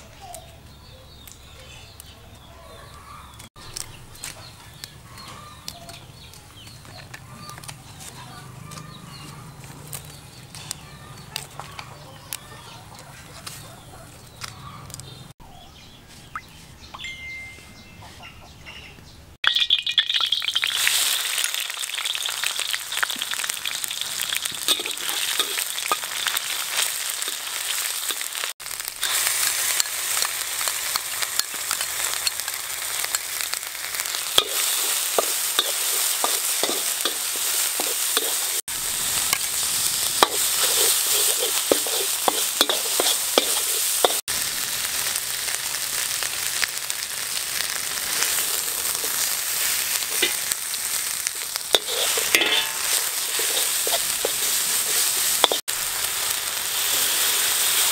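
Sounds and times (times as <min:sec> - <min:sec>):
paste sizzling in hot oil: 0:19.5 - 0:57.9.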